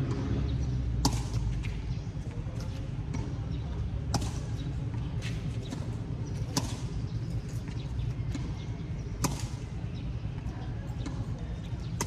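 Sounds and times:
tennis ball pops: 0:01.0 - 0:01.4, 0:09.2 - 0:09.6.

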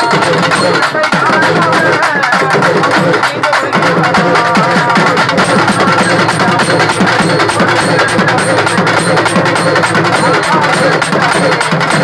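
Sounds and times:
rapid drum strokes: 0:00.0 - 0:12.0
gliding moaning drum tones: 0:04.0 - 0:11.6
metallic ringing: 0:04.1 - 0:12.0.

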